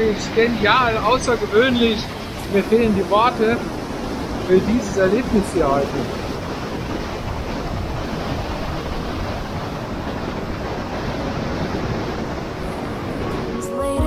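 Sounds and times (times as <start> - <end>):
stream rushing through gorge: 0.0 - 13.6
music tones: 12.6 - 14.0.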